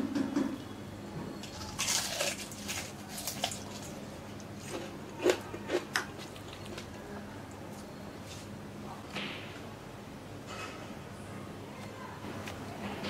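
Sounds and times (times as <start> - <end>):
fried chicken crust crackling: 1.4 - 4.8
soft squishes: 1.4 - 8.6.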